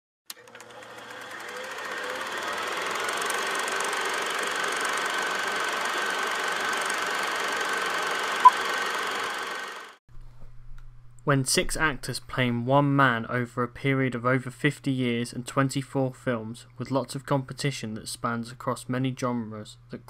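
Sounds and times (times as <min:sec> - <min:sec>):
film projector clatter: 0:00.3 - 0:10.0.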